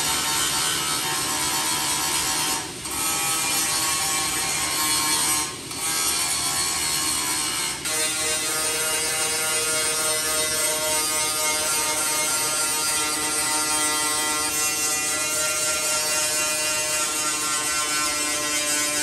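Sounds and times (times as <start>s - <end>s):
angle grinder grinding metal: 0.0s - 19.0s.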